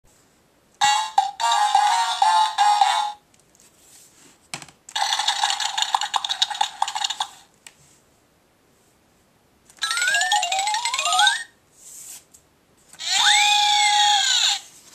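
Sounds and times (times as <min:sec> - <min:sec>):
cartoon sliding tone effect: 0:09.8 - 0:11.5, 0:13.0 - 0:14.7.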